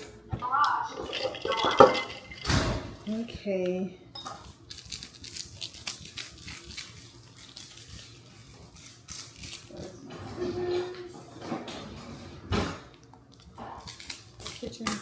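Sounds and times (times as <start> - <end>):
kitchen items clicking and rustling: 0.7 - 15.0.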